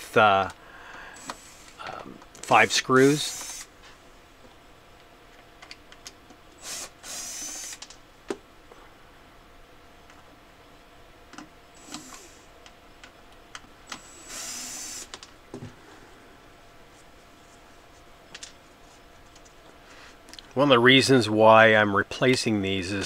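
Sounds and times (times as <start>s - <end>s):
cordless drill whirring: 1.2s - 1.8s, 2.4s - 3.7s, 6.6s - 7.9s, 11.8s - 12.5s, 13.9s - 15.2s.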